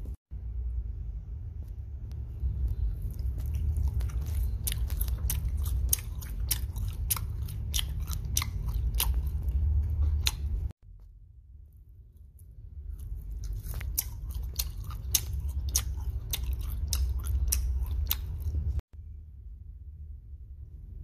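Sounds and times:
steady low hum: 0.0s - 21.0s
wet sticky chewing: 2.4s - 10.7s, 12.3s - 18.8s.

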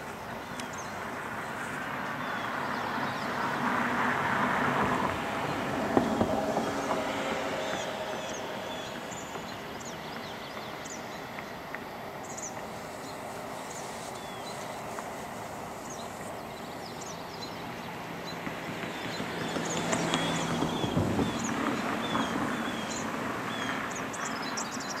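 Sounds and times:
steady rushing outdoor ambience: 0.0s - 25.0s.

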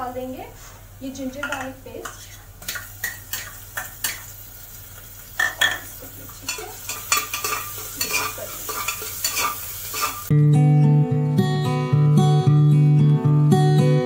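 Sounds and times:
food sizzling in a pan: 0.6s - 10.3s
metal spoon scraping a pot: 6.4s - 10.3s.

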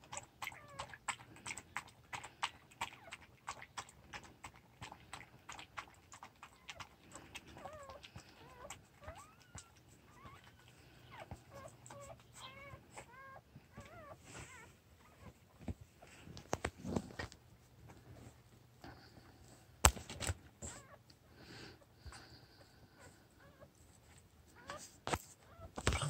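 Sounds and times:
puppy squeaking and whimpering: 0.0s - 1.6s, 6.2s - 15.4s, 20.6s - 21.0s, 23.0s - 23.7s, 24.5s - 26.0s
dog lapping milk: 0.0s - 13.2s.

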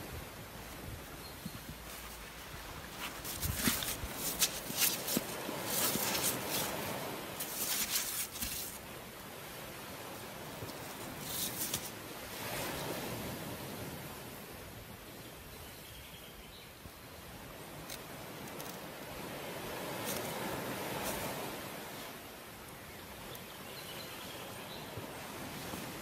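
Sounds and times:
wet fish rustling and scraping: 1.4s - 8.9s, 10.5s - 12.0s, 20.0s - 21.4s.

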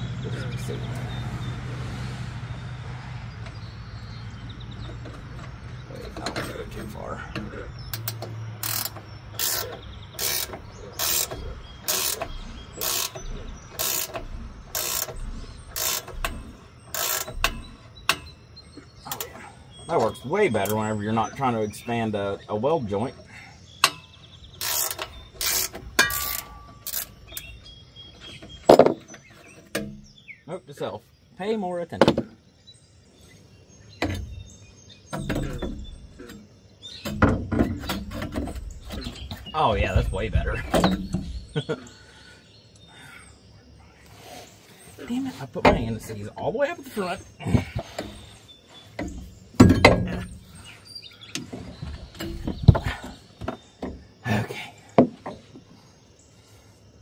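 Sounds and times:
metal knocks and clanks: 4.7s - 21.6s, 23.8s - 27.6s, 28.2s - 30.2s, 35.1s - 41.5s, 45.6s - 46.2s, 49.0s - 50.7s, 51.4s - 54.2s
ratchet wrench clicking: 7.9s - 18.4s, 24.6s - 27.5s.

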